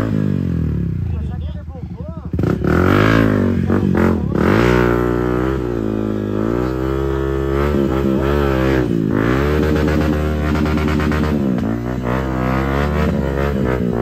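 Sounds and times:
dirt bike engine revving: 0.0s - 14.0s.

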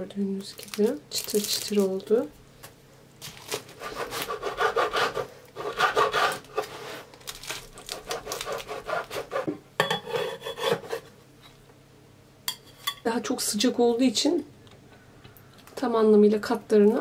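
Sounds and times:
knife sawing through crisp crust: 3.7s - 7.1s, 7.8s - 9.5s.

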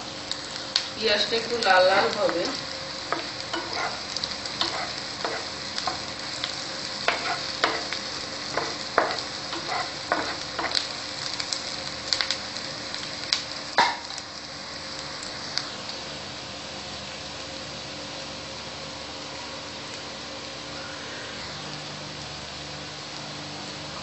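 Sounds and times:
onions sizzling in oil: 0.0s - 24.0s
spatula scraping pan: 3.1s - 6.0s, 7.0s - 10.8s.

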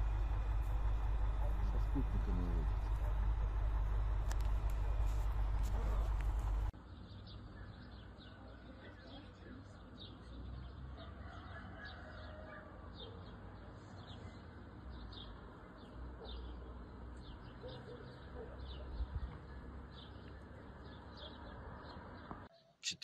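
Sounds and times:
low outdoor rumble: 0.0s - 11.0s
small birds chirping: 0.1s - 22.9s.

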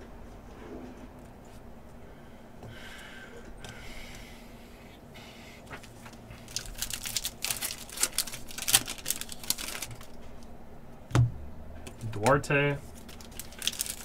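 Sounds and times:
foil wrapper tearing and crinkling: 6.4s - 10.2s, 12.8s - 14.0s.

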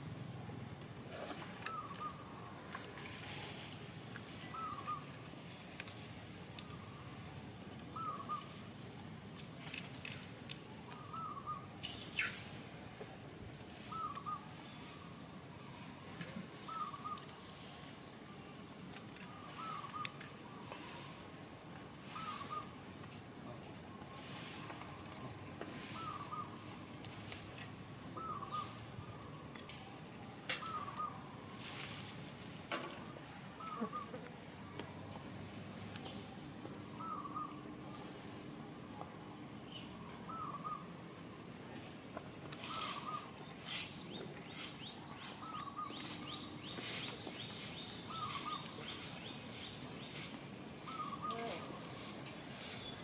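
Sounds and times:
steady background hiss: 0.0s - 53.0s
bird calling: 1.1s - 2.8s, 4.4s - 5.2s, 7.9s - 8.6s, 10.9s - 12.6s, 13.8s - 17.4s, 19.2s - 21.2s, 22.0s - 22.8s, 24.0s - 26.8s, 28.2s - 29.5s, 30.5s - 31.9s, 33.0s - 34.8s, 36.0s - 38.1s, 39.7s - 41.0s, 42.2s - 51.8s.

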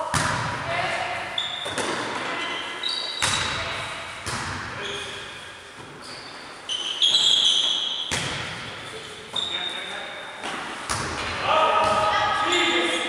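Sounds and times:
shoes squeaking on court floor: 1.3s - 3.6s, 4.8s - 10.9s
volleyball being struck: 8.1s - 8.6s.

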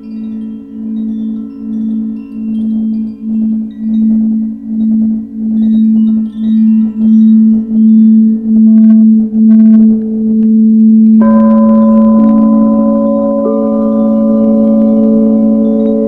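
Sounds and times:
higher singing bowl with rubbing hiss: 0.0s - 16.0s
singing bowl low hum: 0.0s - 16.0s.

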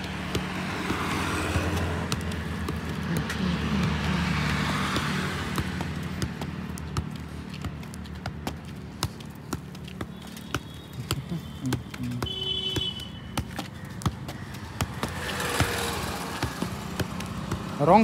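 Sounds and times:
motorbike passing: 0.0s - 9.4s, 13.9s - 18.0s
foot tapping football: 0.0s - 18.0s.

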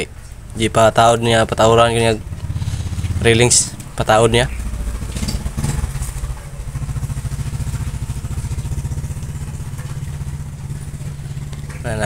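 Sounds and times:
small engine idling: 0.1s - 12.0s.

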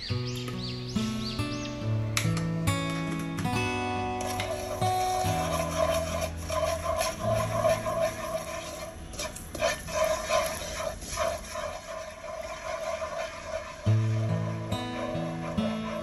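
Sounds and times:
chopsticks scraping a pan: 4.2s - 16.0s
sugar bubbling in hot oil: 6.0s - 14.7s.

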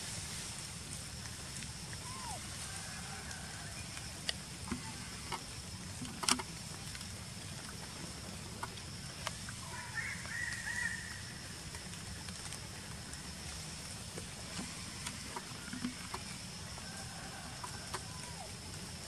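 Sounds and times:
high insect drone: 0.0s - 19.0s
warbling animal call: 2.0s - 2.6s.

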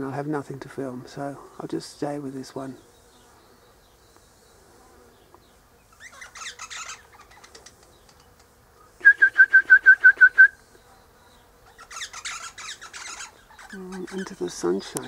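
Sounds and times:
parrot harsh chattering: 5.9s - 7.7s, 11.6s - 14.4s
parrot piping notes: 5.9s - 7.8s, 11.6s - 14.3s.

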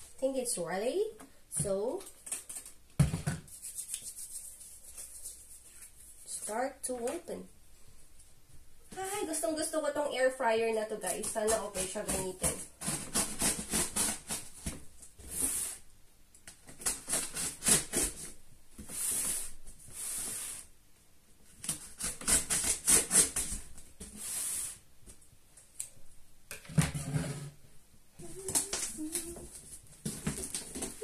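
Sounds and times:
tape tearing off cardboard: 11.1s - 15.8s, 16.6s - 20.6s, 21.6s - 24.2s.

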